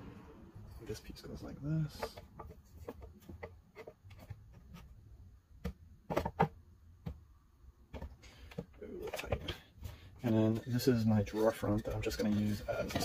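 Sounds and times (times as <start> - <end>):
wooden pieces tapping and knocking: 1.9 - 4.9, 5.6 - 9.6.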